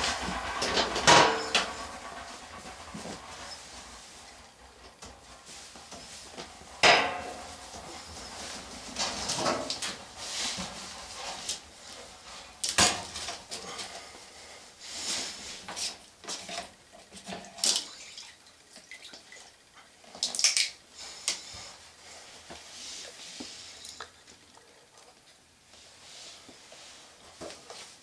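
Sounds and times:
water dripping and trickling: 17.6 - 20.8.

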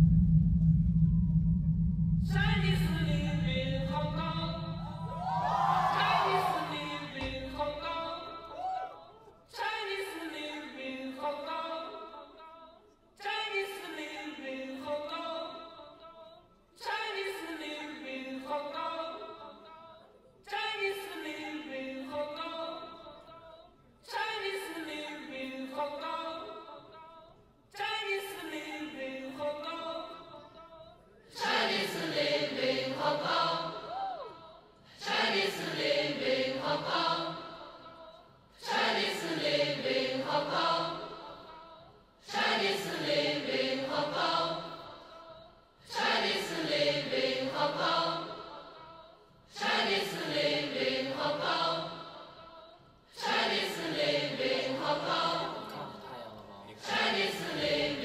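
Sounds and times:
choir chanting: 2.7 - 8.8, 31.3 - 58.0.

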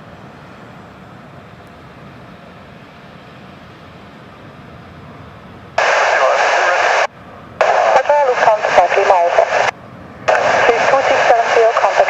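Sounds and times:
distant jet engines rumbling: 0.0 - 12.0
radio transmission: 5.8 - 12.0.

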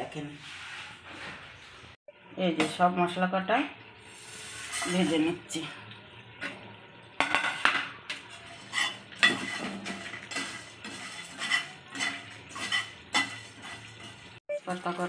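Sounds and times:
spatula scraping a frying pan: 0.1 - 2.0, 4.1 - 5.3, 7.2 - 14.4.

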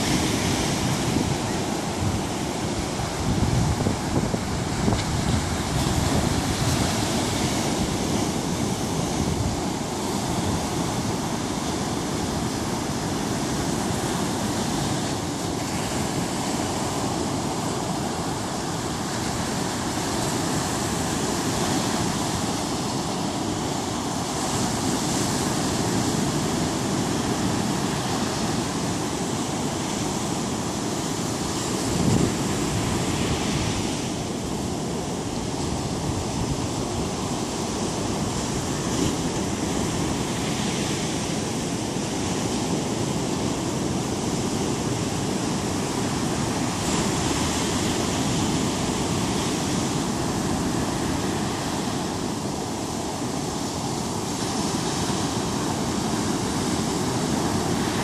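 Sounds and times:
wind buffeting microphone: 0.0 - 29.5, 31.4 - 40.8
surf breaking on beach: 0.0 - 58.0.

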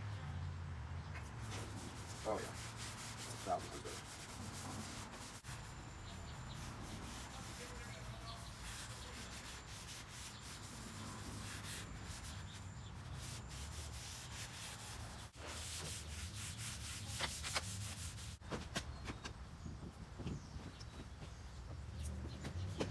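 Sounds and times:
rag rubbing on wood: 1.4 - 18.4.

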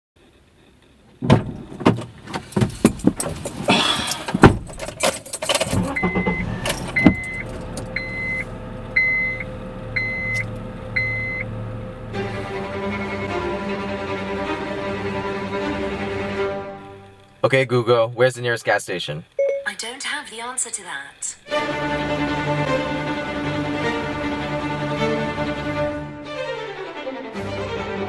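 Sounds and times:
car engine running: 1.0 - 15.9
keys jangling: 2.4 - 6.0
warning chime beeping: 5.8 - 10.4, 11.0 - 11.5, 19.4 - 20.0.

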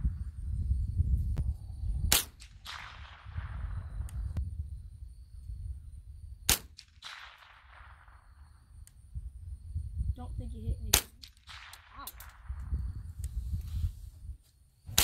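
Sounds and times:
rifle shots with echo: 2.1 - 3.8, 6.5 - 8.4, 10.9 - 12.5.

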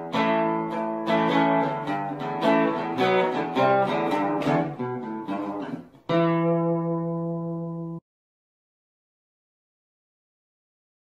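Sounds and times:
acoustic guitar music: 0.0 - 8.0.

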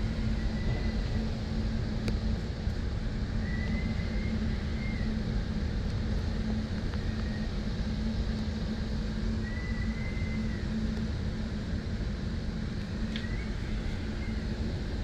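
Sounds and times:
faint high whistle: 0.0 - 1.2, 3.4 - 5.2, 9.3 - 10.8, 13.0 - 14.6
hurricane wind and rain: 0.0 - 15.0
low hum: 0.0 - 15.0.

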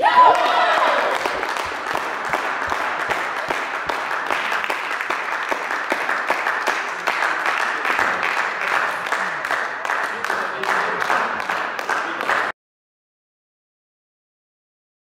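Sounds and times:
applause in a sports hall: 0.0 - 12.6.

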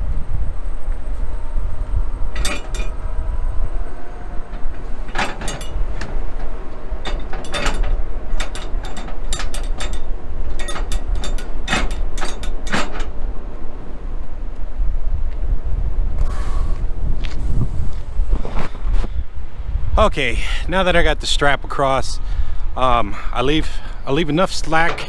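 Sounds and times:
wind buffeting microphone: 0.0 - 25.0
cargo strap clicking and rattling: 4.5 - 13.2.

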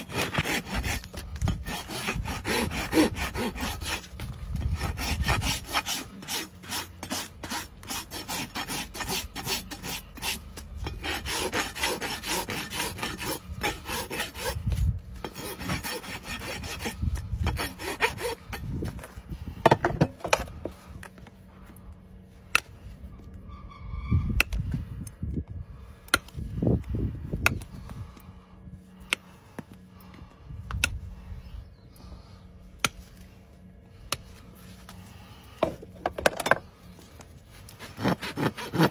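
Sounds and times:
rasp filing a hoof: 0.0 - 20.5, 35.6 - 38.9.

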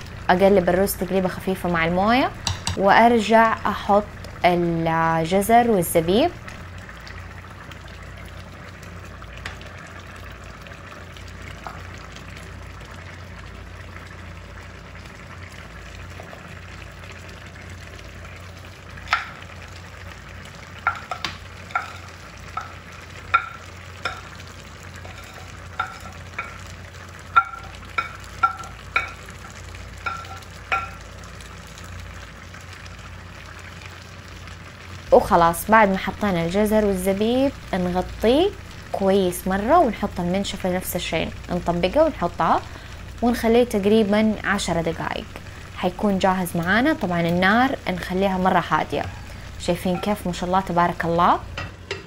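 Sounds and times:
rice sizzling in a pot: 0.0 - 52.0
metal utensil clinking on a pot: 20.8 - 24.3, 25.0 - 26.6, 27.4 - 29.2, 30.0 - 31.0.

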